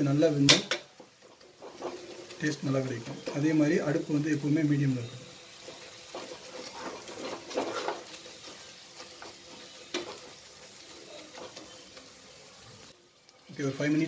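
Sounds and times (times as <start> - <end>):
onion mixture sizzling: 0.0 - 14.0
wooden spatula scraping a pot: 1.0 - 3.8, 5.4 - 12.1.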